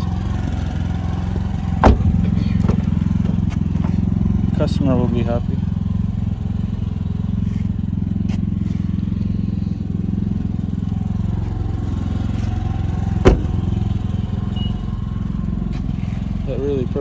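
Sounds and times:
engine running steadily: 0.0 - 17.0
car door shutting: 1.8 - 2.9, 13.2 - 13.6.

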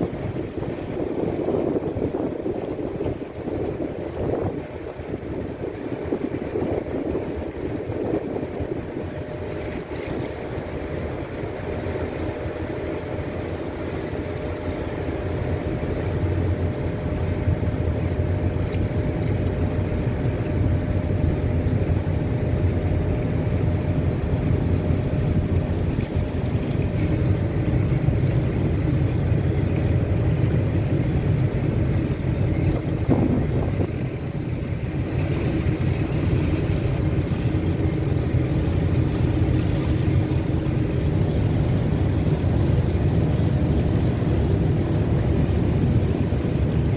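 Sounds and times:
wind noise: 0.0 - 10.3, 24.6 - 46.9
boat engine rumble: 0.0 - 46.9
water noise: 0.0 - 46.9.

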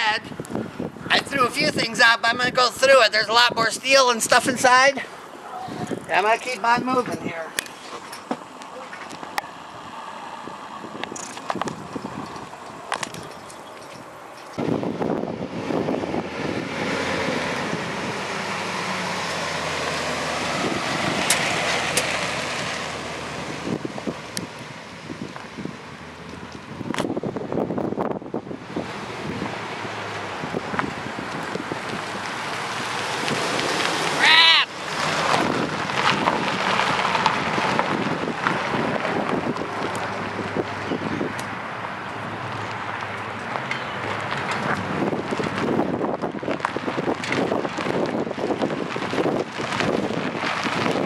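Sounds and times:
wind on microphone: 0.0 - 2.6, 5.5 - 7.4, 9.1 - 34.2, 34.9 - 42.9, 44.2 - 51.0
tyres crunching on gravel: 1.4 - 14.8, 28.4 - 51.0
pickup truck driving past: 13.7 - 26.8, 28.6 - 51.0.

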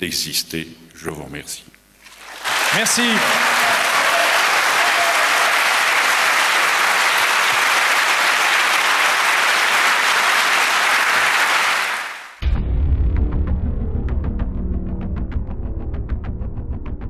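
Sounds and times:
audience applauding: 2.1 - 12.4
music with deep bass: 12.4 - 17.0.

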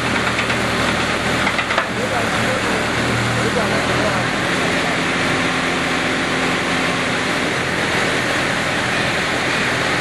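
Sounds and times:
drilling rig diesel engine and hydraulics: 0.0 - 10.0.

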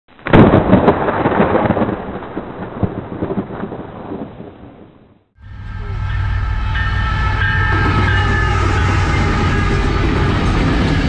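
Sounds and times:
high ringing tones: 5.4 - 11.0
locomotive engine rumble: 5.4 - 11.0.

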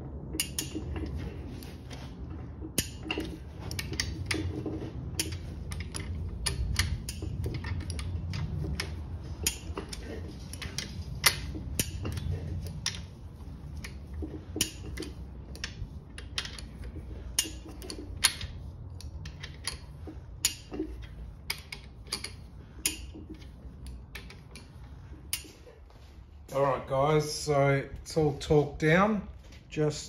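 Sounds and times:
torque wrench ratcheting and clicking: 5.2 - 13.0.

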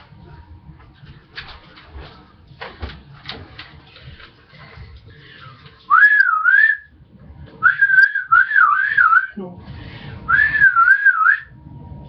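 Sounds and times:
person whistling: 5.9 - 6.9, 7.6 - 9.4, 10.3 - 11.5.

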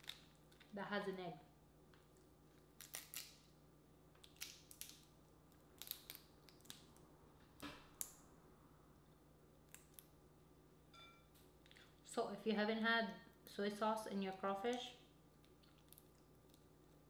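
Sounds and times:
crawfish shells cracking: 0.0 - 0.8, 1.9 - 3.5, 4.2 - 7.0, 15.4 - 17.0.

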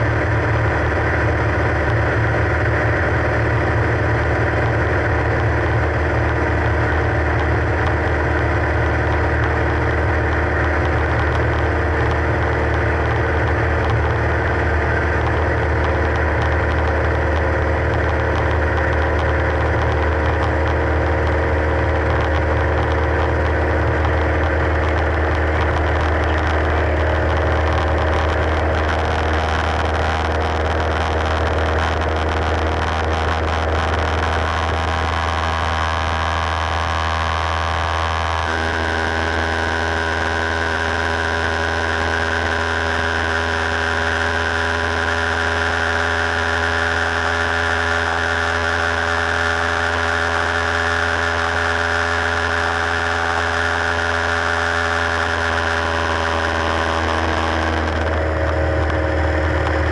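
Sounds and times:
airplane engine and propeller: 0.0 - 59.9.

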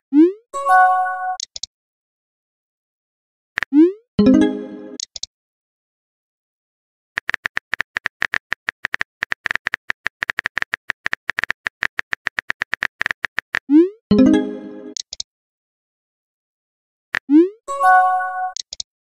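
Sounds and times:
phone keyboard typing clicks: 5.0 - 5.3, 7.2 - 13.7, 14.9 - 15.2, 18.5 - 18.9.

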